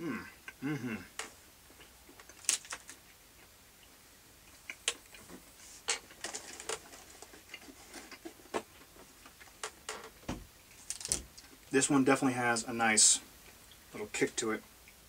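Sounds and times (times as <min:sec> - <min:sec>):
chocolate wrapper crinkling: 0:02.2 - 0:03.0, 0:10.8 - 0:11.5.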